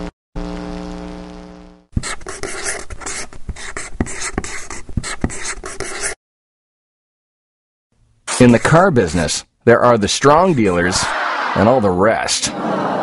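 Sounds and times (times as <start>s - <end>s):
pen scribbling on paper: 2.0s - 6.2s, 8.3s - 9.2s, 10.3s - 11.0s.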